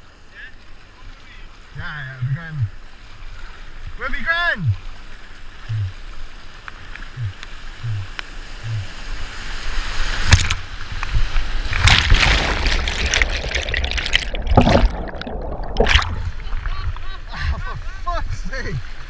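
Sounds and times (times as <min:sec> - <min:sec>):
hiss of moving water: 0:04.6 - 0:19.0
soft low thumps: 0:05.7 - 0:06.0, 0:07.1 - 0:08.9
crashing whitewater: 0:09.6 - 0:18.7.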